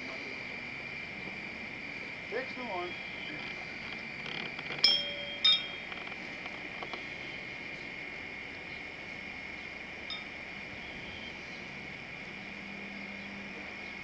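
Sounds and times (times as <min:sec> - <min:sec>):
insects droning: 0:00.0 - 0:14.0
low steady hum: 0:00.0 - 0:14.0
metallic clink: 0:04.8 - 0:05.9.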